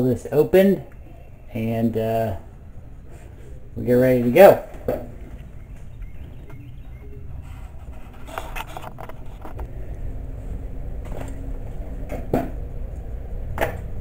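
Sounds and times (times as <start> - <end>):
steady low rumble: 0.0 - 4.0, 4.7 - 14.0
camera handling rustling: 7.8 - 9.7.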